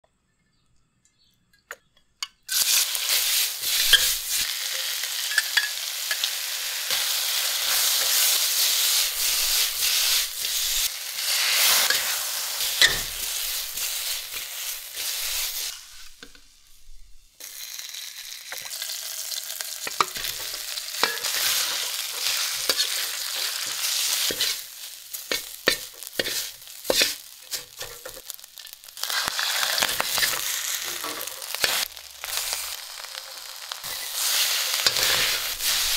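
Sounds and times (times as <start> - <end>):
metal spatula scraping a wok: 2.5 - 16.1, 19.8 - 28.3, 29.0 - 32.8, 33.8 - 35.9
food sizzling in hot oil: 2.5 - 35.9.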